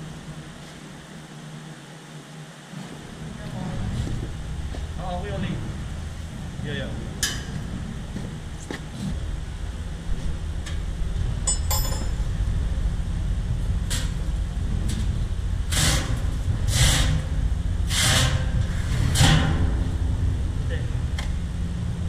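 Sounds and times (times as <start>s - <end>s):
workshop hum: 0.0s - 22.0s
metallic ring: 11.4s - 12.3s.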